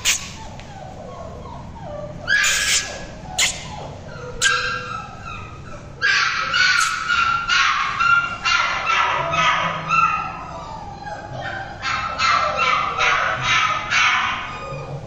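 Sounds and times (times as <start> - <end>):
puppies yipping and whining: 0.0 - 15.0.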